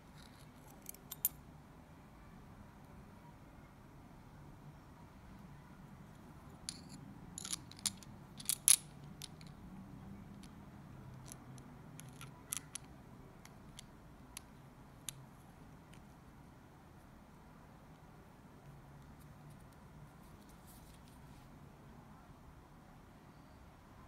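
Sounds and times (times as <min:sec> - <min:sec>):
small metal clicks and scrapes: 0:00.1 - 0:01.4, 0:06.6 - 0:09.6, 0:11.1 - 0:14.5.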